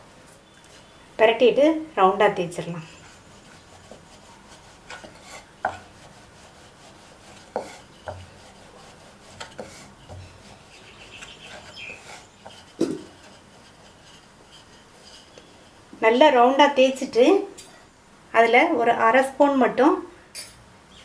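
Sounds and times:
rolling pin rubbing dough: 2.8s - 15.8s
rolling pin knocking on board: 12.8s - 13.2s.

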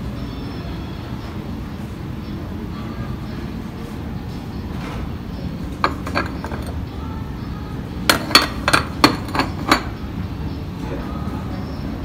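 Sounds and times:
ceramic dishes clinking: 5.7s - 6.9s, 8.1s - 10.0s.

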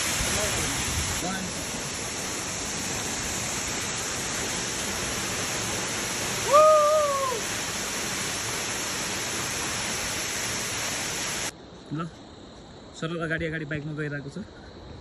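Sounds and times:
waterfall rushing: 0.0s - 11.5s
person whooping shout: 6.4s - 7.4s.

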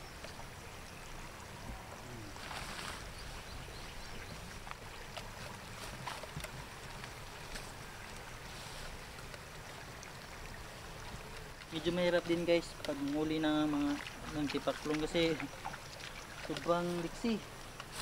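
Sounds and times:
hands rustling leaves and grass: 2.3s - 9.8s, 13.4s - 18.0s.

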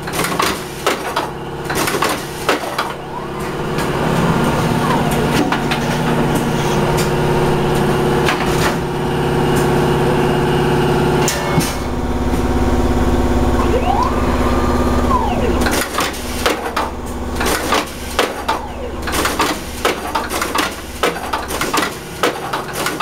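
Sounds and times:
drive whine: 11.9s - 21.4s
motor hum: 12.7s - 21.5s.

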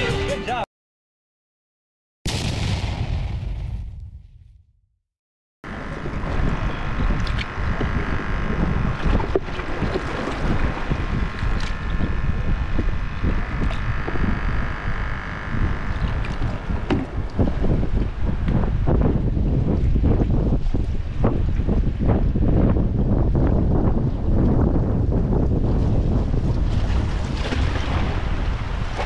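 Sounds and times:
steady droning tone: 5.7s - 19.9s
wind buffeting microphone: 5.7s - 29.0s.

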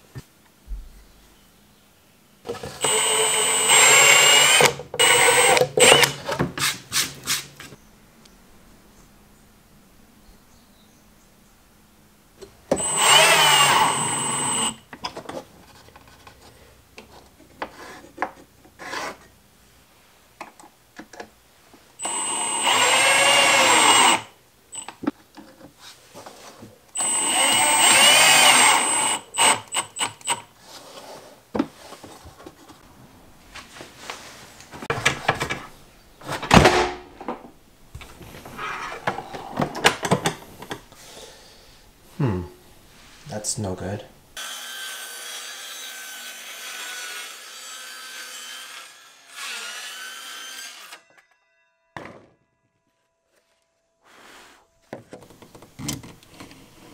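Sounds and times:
drill driving screws into wood: 2.8s - 7.5s, 12.7s - 14.8s, 22.0s - 24.9s, 27.0s - 30.5s.

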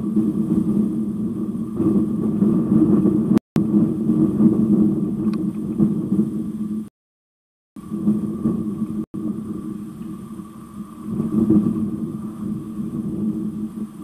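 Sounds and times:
rough rumble: 0.0s - 6.9s, 7.8s - 14.0s
low engine drone: 7.8s - 14.0s.

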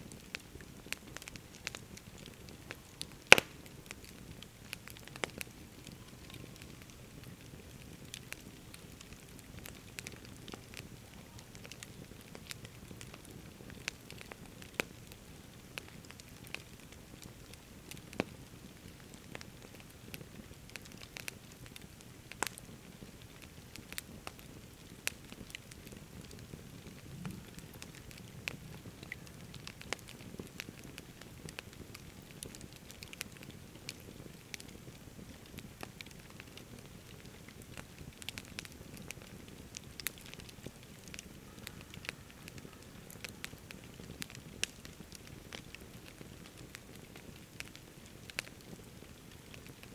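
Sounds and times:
campfire crackling and popping: 0.0s - 49.9s
low background hiss: 0.0s - 49.9s.

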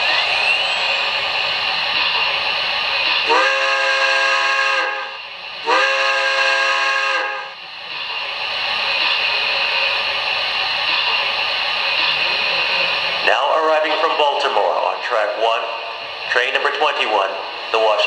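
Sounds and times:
steam hissing: 0.0s - 18.0s
steam whistle blasts: 3.3s - 7.6s.

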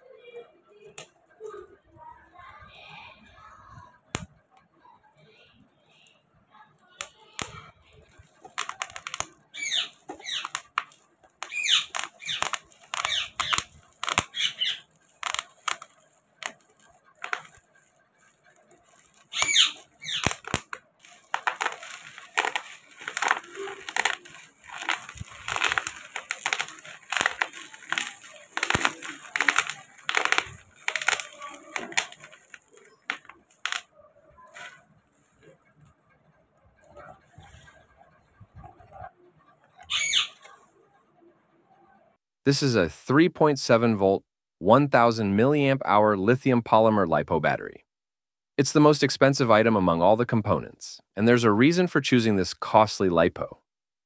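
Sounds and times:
bubble wrap crinkling: 6.7s - 36.0s, 36.8s - 40.7s.

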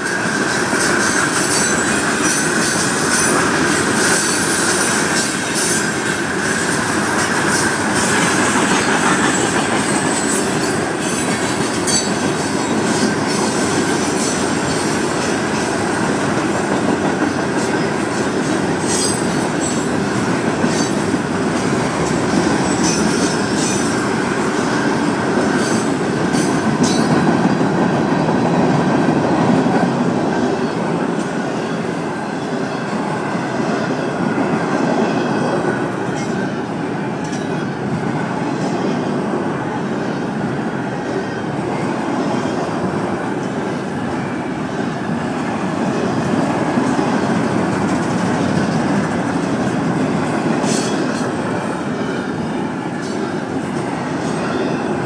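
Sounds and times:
high wheel squeal: 0.0s - 15.6s, 17.6s - 27.1s
train wheels rumbling on rail: 0.0s - 55.0s.

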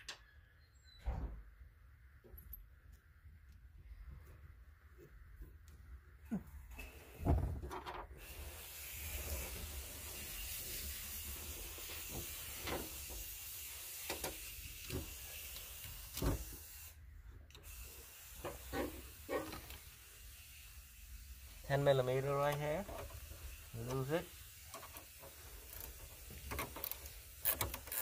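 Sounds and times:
steady hiss: 6.4s - 28.0s.

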